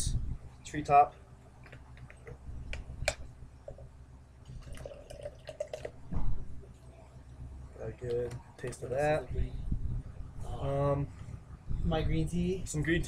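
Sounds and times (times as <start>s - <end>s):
juice glugging into cup: 4.5s - 6.2s
loud low thump: 6.1s - 6.5s.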